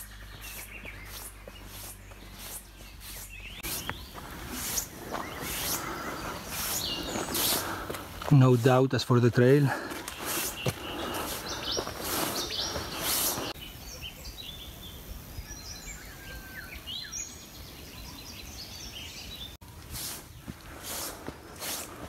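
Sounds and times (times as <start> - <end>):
footsteps on dirt trail: 0.0 - 13.6, 19.6 - 22.0
birds chirping: 0.0 - 22.0.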